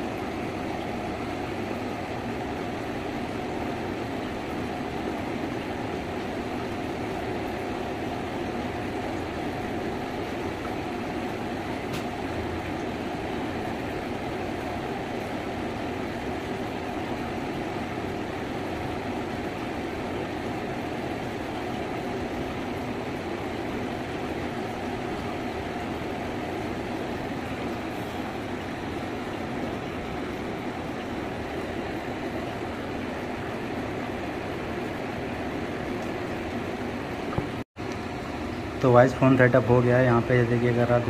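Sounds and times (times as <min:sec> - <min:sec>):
rushing hum with faint tone: 0:00.0 - 0:41.0.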